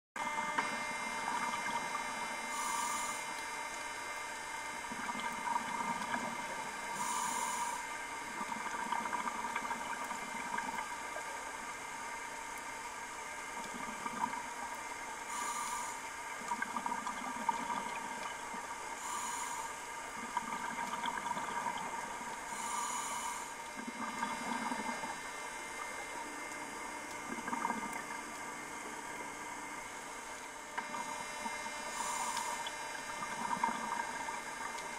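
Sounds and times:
steady hum: 0.2s - 34.9s
regulator inhale hiss: 2.4s - 3.4s, 6.9s - 8.1s, 15.2s - 16.1s, 19.0s - 19.9s, 22.4s - 23.8s, 31.7s - 32.8s
bubbling exhale: 2.5s - 3.4s, 5.1s - 9.8s, 15.3s - 18.2s, 19.0s - 25.2s, 30.9s - 34.4s.

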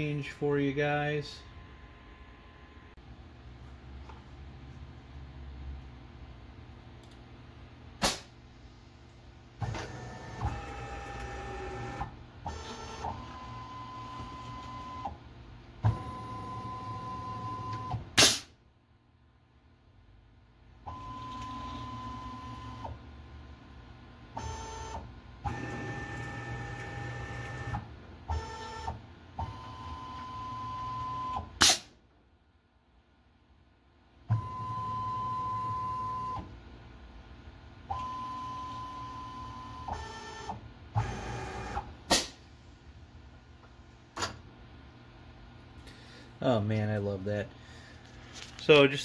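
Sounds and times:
pneumatic air blast bursts: 8.0s - 8.3s, 18.2s - 18.5s, 31.6s - 31.9s, 42.1s - 42.4s
mill axis motors whining: 9.6s - 15.2s, 24.4s - 31.4s.

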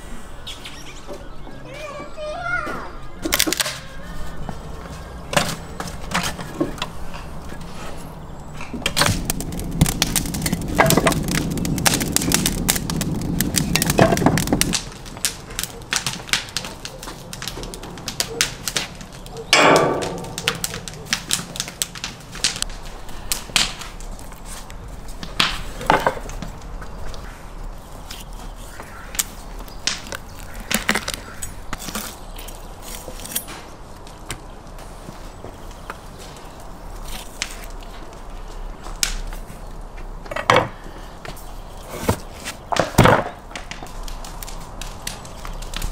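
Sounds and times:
loud steady noise: 19.5s - 21.0s.

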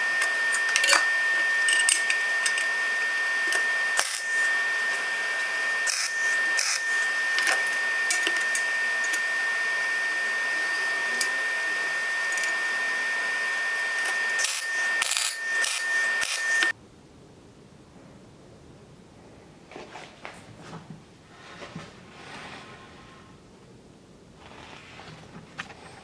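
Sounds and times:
high steady whine: 0.0s - 16.8s
steel pieces clinking: 0.6s - 2.7s.

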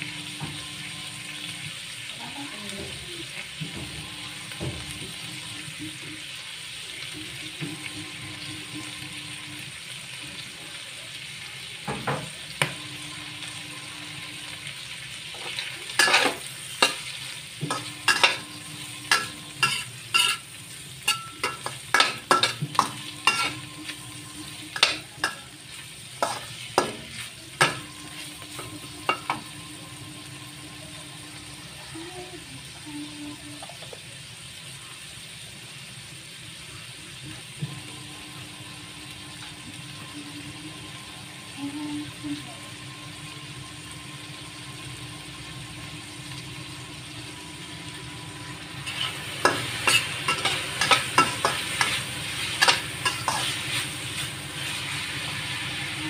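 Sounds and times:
pork fat sizzling in a wok: 0.0s - 56.0s
spatula scraping and knocking pan: 15.4s - 25.5s, 26.2s - 29.5s, 48.8s - 55.0s.

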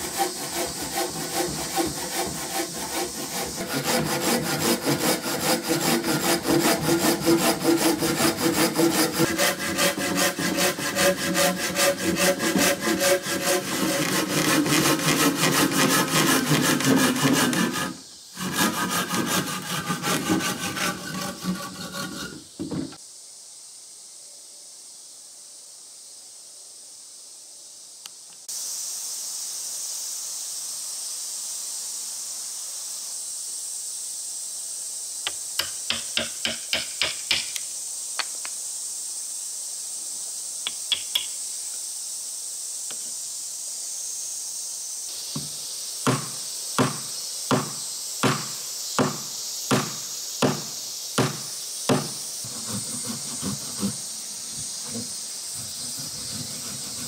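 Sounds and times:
steady high hiss: 0.0s - 57.0s
mallet striking wood chisel: 35.6s - 37.6s.

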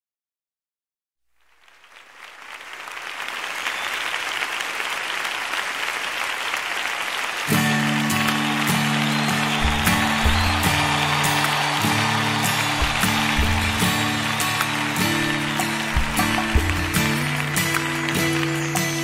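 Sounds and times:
crowd applause: 1.5s - 19.0s
band playing instrumental intro: 7.6s - 19.0s.

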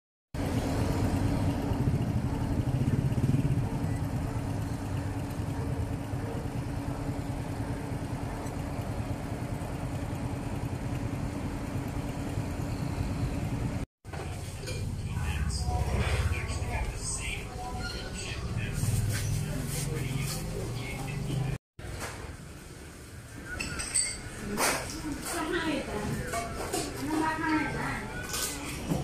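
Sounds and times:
motorbike and car engines passing: 0.4s - 13.8s, 14.7s - 17.1s.

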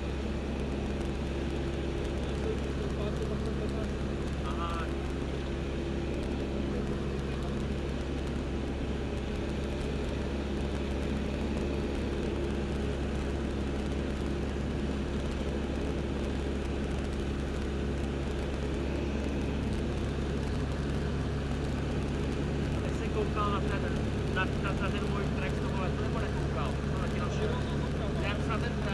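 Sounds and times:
propeller aircraft engine running: 0.0s - 28.9s.

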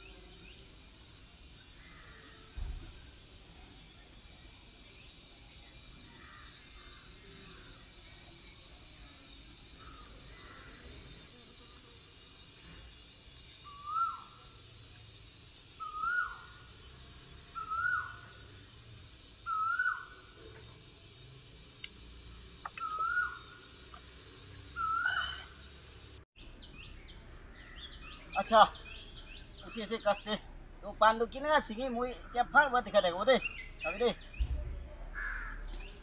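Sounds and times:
steady high hiss: 0.0s - 26.3s
bird calling: 13.6s - 14.5s, 15.8s - 16.8s, 17.6s - 18.4s, 19.5s - 20.4s, 22.6s - 25.7s.

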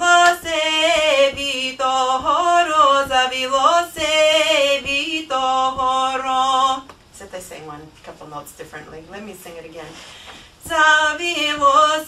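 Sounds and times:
woman singing folk song: 0.0s - 7.0s, 9.2s - 12.0s.

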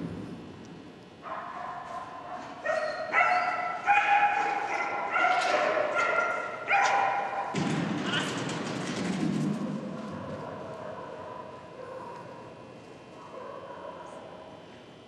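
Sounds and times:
dog yipping and whining: 2.7s - 5.3s.

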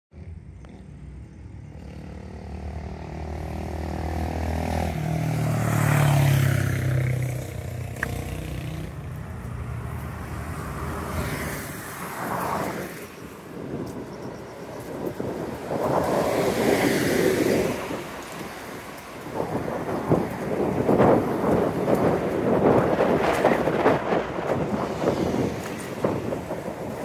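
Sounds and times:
vehicle engine passing: 0.2s - 12.9s
cars whooshing past: 0.2s - 27.0s.

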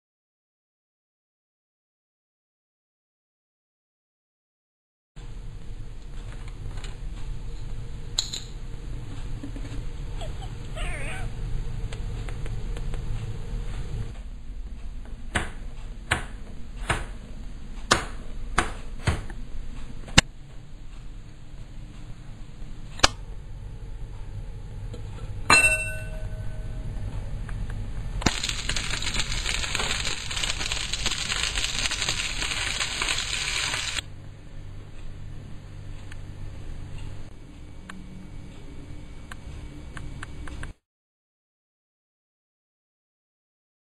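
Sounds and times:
low steady hum: 19.4s - 40.8s
metallic clink with short ring: 25.5s - 26.6s
sausages sizzling in a frying pan: 28.2s - 34.0s.

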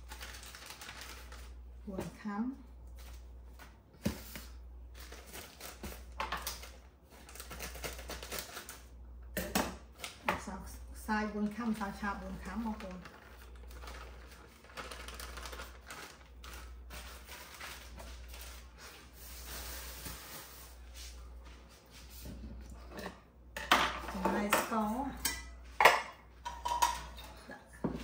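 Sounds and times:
utensils clinking on bowls and pans: 22.8s - 28.0s.

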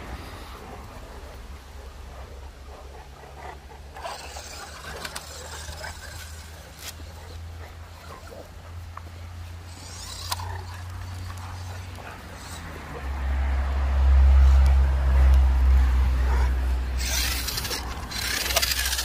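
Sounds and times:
dogs snuffling and breathing heavily: 0.0s - 19.0s.

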